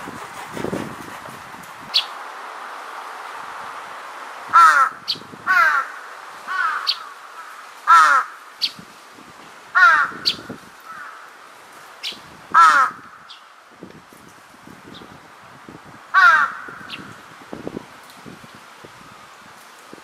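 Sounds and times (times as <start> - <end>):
crow cawing loudly: 4.5 - 8.5, 9.8 - 11.4, 12.5 - 13.3, 16.1 - 17.0.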